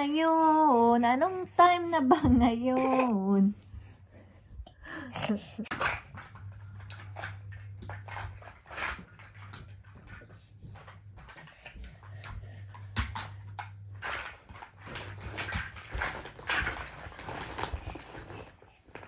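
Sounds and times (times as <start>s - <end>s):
plastic toy blocks clacking: 5.7s - 11.6s.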